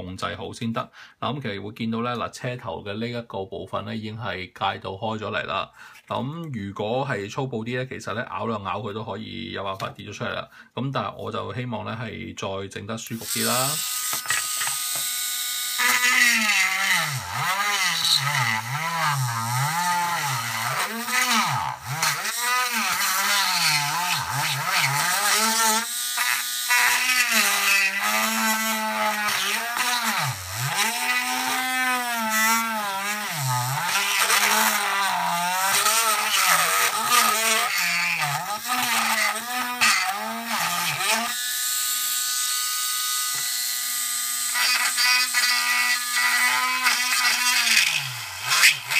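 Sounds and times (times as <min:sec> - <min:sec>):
rotary tool cutting plastic: 0:13.2 - 0:48.9.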